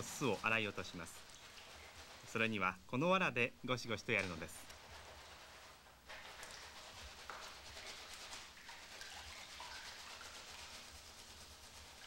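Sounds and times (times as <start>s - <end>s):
straw bundle scrubbing skin: 0.0s - 2.8s, 4.1s - 12.0s
water dripping: 6.1s - 10.8s.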